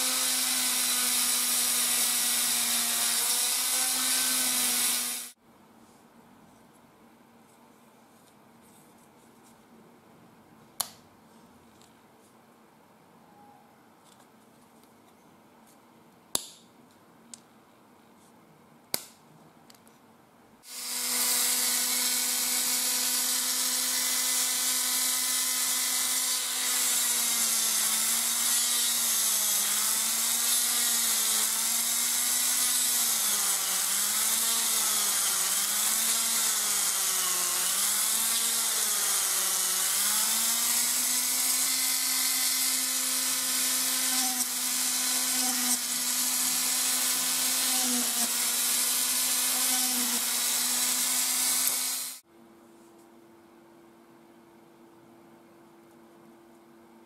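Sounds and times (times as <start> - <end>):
rotary tool whining: 20.7 - 52.2.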